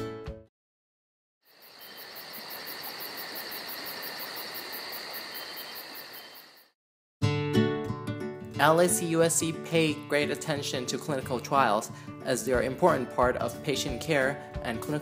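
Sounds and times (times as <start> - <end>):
crickets chirping: 1.4 - 6.8.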